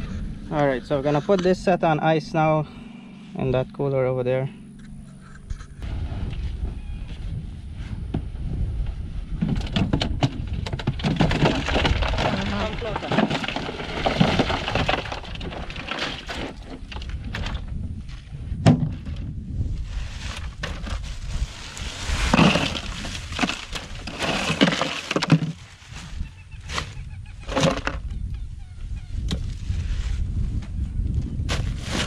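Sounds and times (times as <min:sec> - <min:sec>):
ice cubes clattering into cooler: 0:10.5 - 0:17.7, 0:22.0 - 0:25.8, 0:27.4 - 0:28.0.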